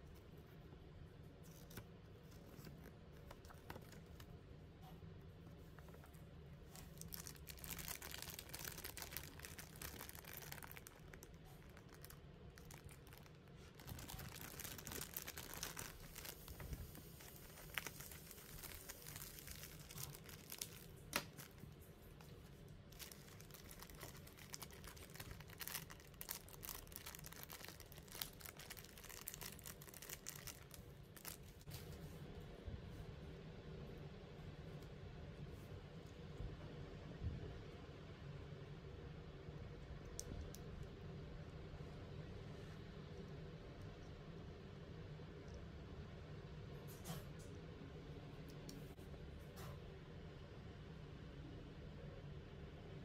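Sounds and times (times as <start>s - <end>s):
plastic bag crinkling and tearing: 6.7s - 21.8s, 22.8s - 31.7s.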